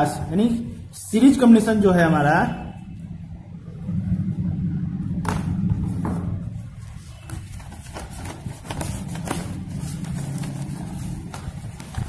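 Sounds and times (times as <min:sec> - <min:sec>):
low hum: 0:00.0 - 0:12.0
paper rustling and crinkling: 0:06.8 - 0:12.0.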